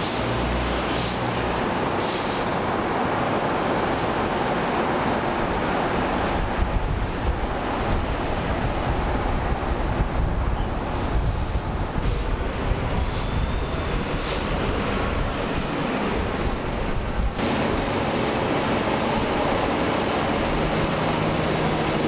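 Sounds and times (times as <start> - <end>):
distant city traffic: 0.0 - 22.0
wind rumbling on microphone: 0.2 - 22.0.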